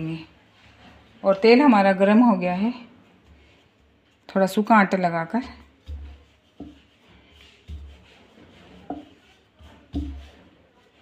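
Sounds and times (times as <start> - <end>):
dough rolling and scraping: 0.0 - 11.0
rolling pin knocking on board: 9.9 - 10.4.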